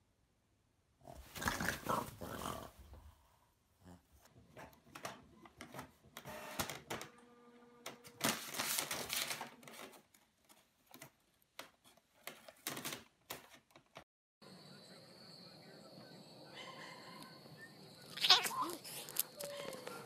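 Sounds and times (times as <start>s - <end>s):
inkjet printer clicking and whirring: 5.6s - 7.2s
printer motor hum: 6.2s - 8.1s.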